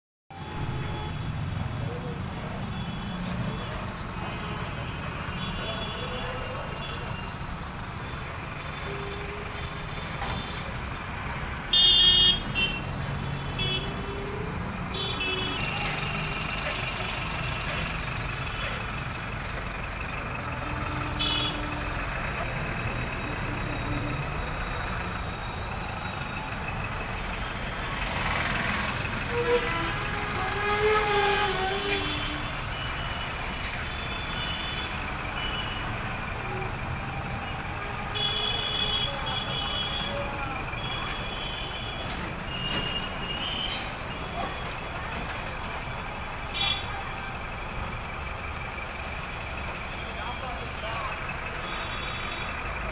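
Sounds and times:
car horn honks: 0.3s - 1.4s, 11.7s - 16.0s, 20.5s - 22.0s, 38.0s - 40.2s
street traffic rumbling: 0.3s - 52.9s.

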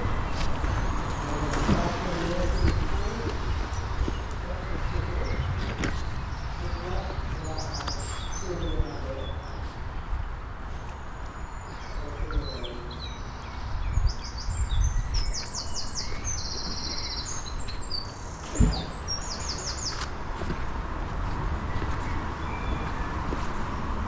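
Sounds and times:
songbird trilling: 11.6s - 20.0s
loud thump: 18.5s - 18.9s.

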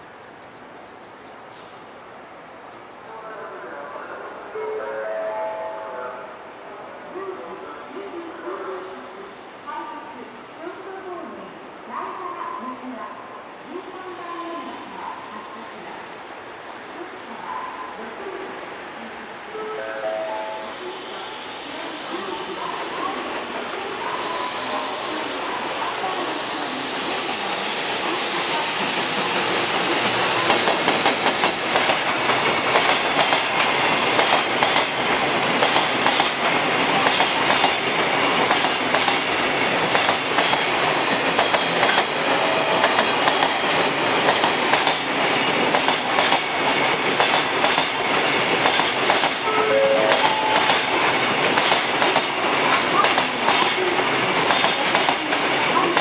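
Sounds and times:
train wheels clattering on rail joints: 28.8s - 49.4s, 50.0s - 56.0s.

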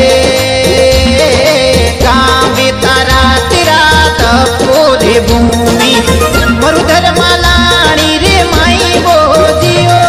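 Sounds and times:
folk song with singing voice: 0.0s - 10.0s.

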